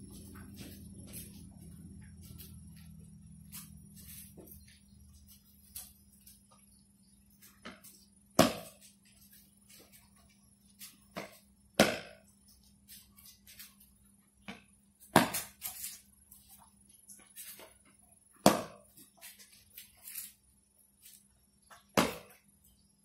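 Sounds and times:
light footsteps and shoe taps: 0.0 - 6.7.

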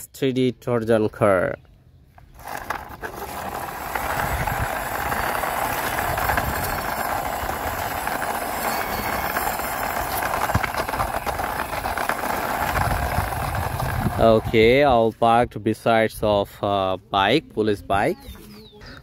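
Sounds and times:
toy car rolling on concrete: 2.1 - 15.0.

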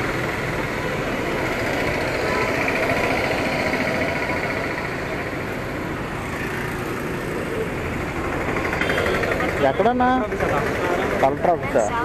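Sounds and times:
street noise: 0.0 - 12.0.

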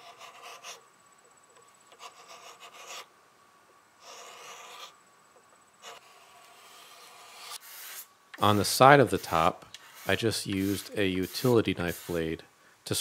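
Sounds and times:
scraper scratching wood: 0.0 - 0.8, 1.9 - 3.1, 4.0 - 4.9, 5.8 - 12.3.

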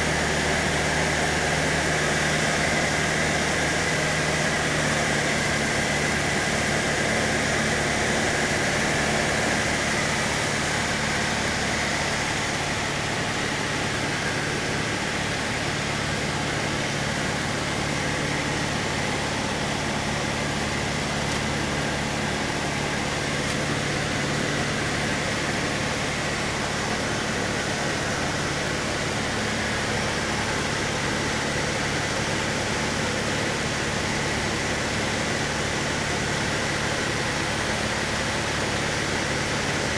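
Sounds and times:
small plane engine droning: 0.0 - 39.9.

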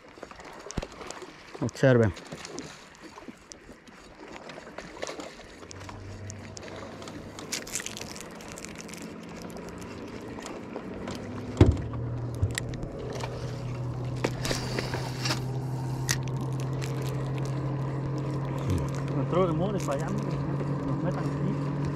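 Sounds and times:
boat motor humming: 0.0 - 21.9
knock on boat: 11.4 - 12.6.

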